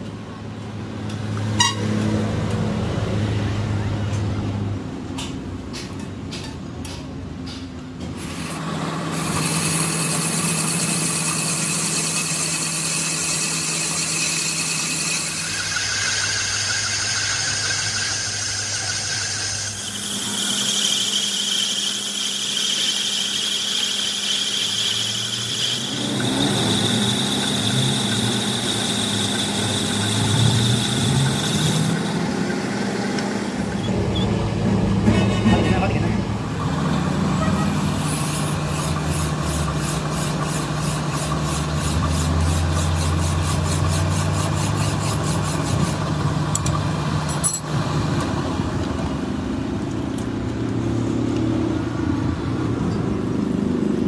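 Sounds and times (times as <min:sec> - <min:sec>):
lathe cutting tool squealing: 0:08.2 - 0:32.4, 0:33.5 - 0:34.4, 0:36.8 - 0:46.2
lathe machine hum: 0:08.2 - 0:35.4.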